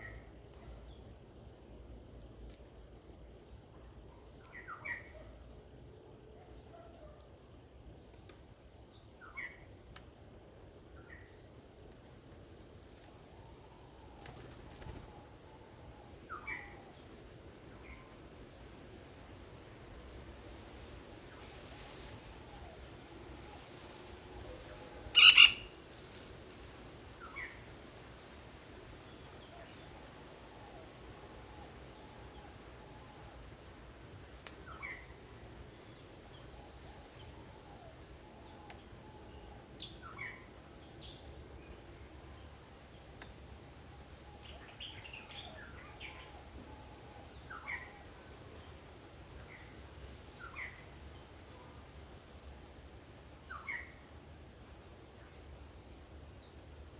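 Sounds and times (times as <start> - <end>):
insect chorus drone: 0.0 - 56.9
loud sharp chirp: 25.2 - 25.6
small animals chirping: 25.2 - 25.6.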